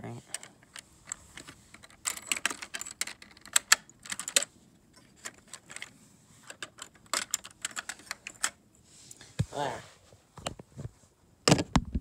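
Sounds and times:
plastic parts clicking and clattering: 0.2 - 8.6.

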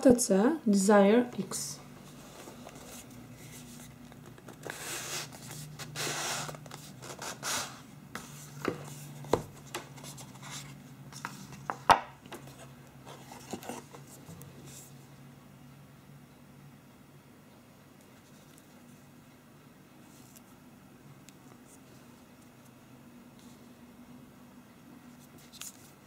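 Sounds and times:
cardboard rubbing and scraping: 1.9 - 14.9.

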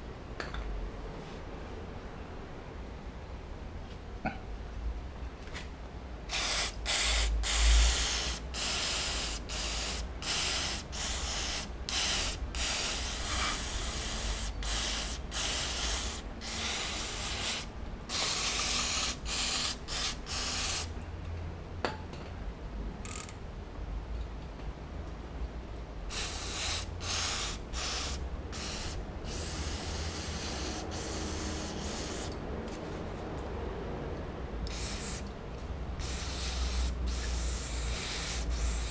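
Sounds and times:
aerosol spray hissing: 6.3 - 20.9, 26.1 - 32.3, 34.7 - 35.3, 36.0 - 38.9.

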